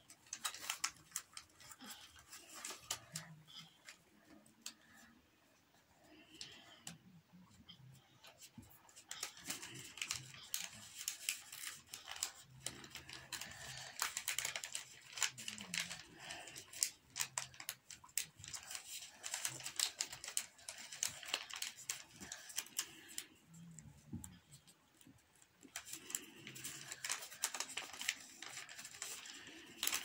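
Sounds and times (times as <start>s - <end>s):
paper rustling and crinkling: 0.0s - 5.1s, 8.2s - 30.0s.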